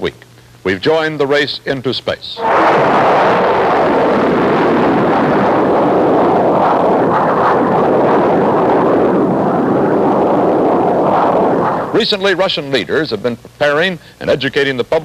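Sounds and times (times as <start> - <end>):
rocket engine exhaust roar: 2.4 - 13.2.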